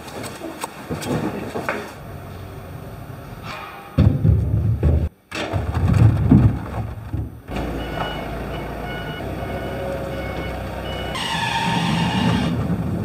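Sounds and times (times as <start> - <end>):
coconuts thudding into metal bucket: 4.0 - 7.4
forklift engine running: 7.3 - 13.0
reversing alarm beeps: 7.5 - 12.0.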